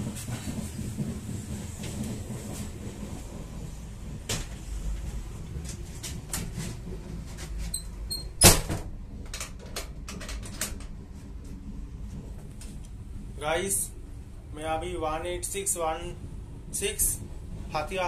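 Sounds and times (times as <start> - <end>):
moving train rumble: 0.0 - 18.0
metal door banging shut: 8.1 - 10.8.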